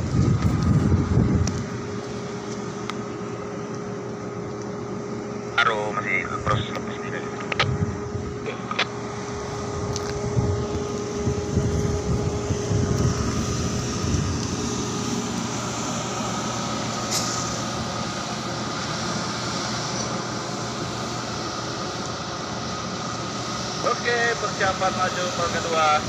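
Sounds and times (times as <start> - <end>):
bulldozer diesel engine running: 0.0 - 26.0
faint constant whine: 0.0 - 26.0
machinery hum: 0.0 - 26.0.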